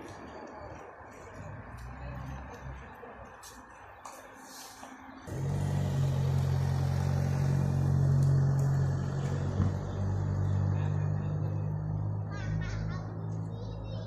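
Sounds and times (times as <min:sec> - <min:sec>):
engine running low hum: 0:04.4 - 0:14.0.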